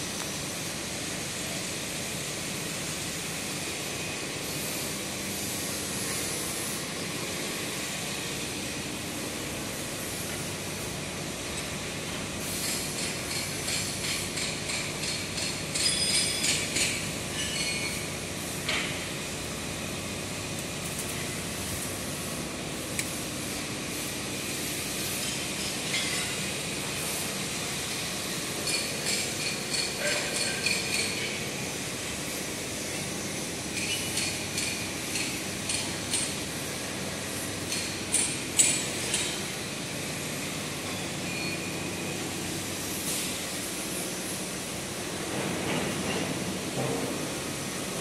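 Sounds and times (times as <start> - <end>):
workshop machinery humming: 0.0 - 48.0.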